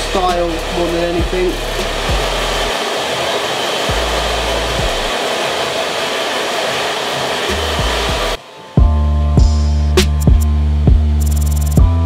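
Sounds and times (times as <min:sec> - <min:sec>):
hair dryer blowing: 0:00.0 - 0:08.8.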